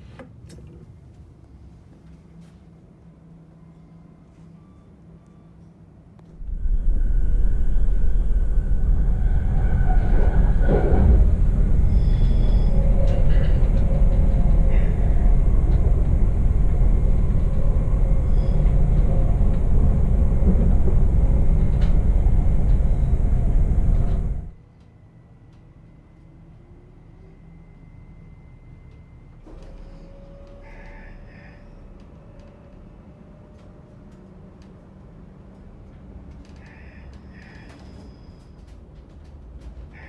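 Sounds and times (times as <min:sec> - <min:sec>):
train wheels rumbling on track: 0:06.3 - 0:40.0
high wheel squeaks: 0:09.5 - 0:15.0, 0:18.0 - 0:19.4.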